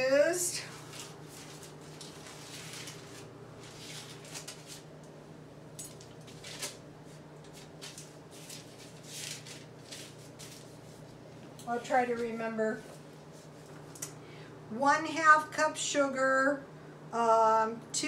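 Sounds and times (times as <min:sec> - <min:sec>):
low steady hum: 0:00.0 - 0:18.0
paper rustling and crinkling: 0:00.6 - 0:04.9, 0:05.9 - 0:11.2.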